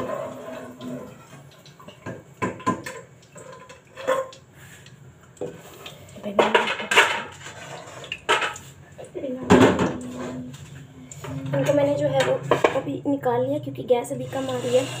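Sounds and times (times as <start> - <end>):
dishes and utensils clattering: 0.0 - 4.4, 6.3 - 8.7, 9.4 - 12.8.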